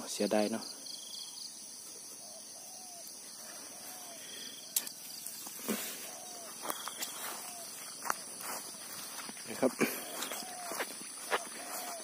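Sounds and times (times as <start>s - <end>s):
crickets and insects chirping: 0.0s - 12.0s
footsteps through grass: 4.9s - 12.0s.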